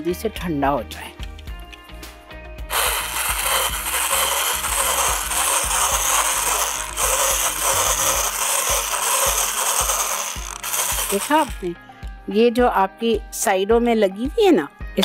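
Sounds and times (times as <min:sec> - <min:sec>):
hand blender whisking: 0:02.7 - 0:11.7.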